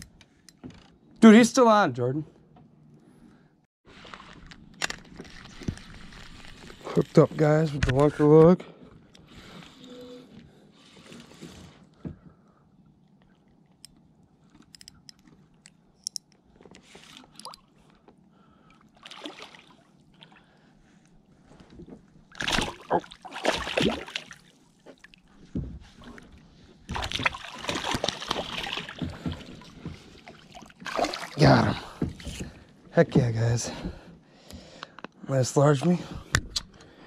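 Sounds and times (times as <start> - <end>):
fish thrashing and splashing: 19.0 - 20.3, 22.3 - 25.3, 26.9 - 31.4.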